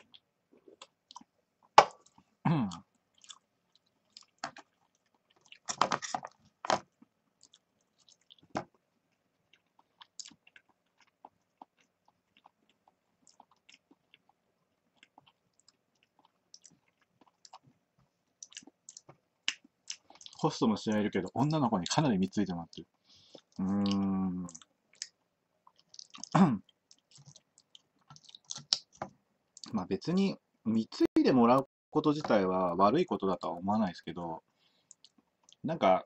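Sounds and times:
chewing and biting: 23.4 - 28.9.

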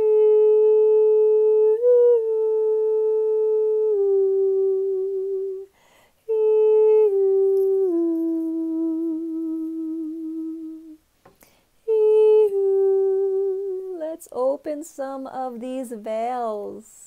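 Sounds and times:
woman humming long notes: 0.0 - 11.0, 11.9 - 14.2.

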